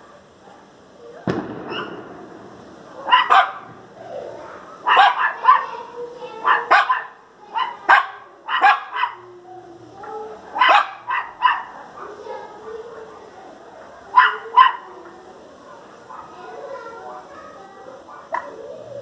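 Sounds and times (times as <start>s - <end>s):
small dog barking: 1.7s - 2.0s, 3.0s - 3.8s, 4.8s - 9.3s, 10.5s - 12.2s, 14.1s - 15.0s.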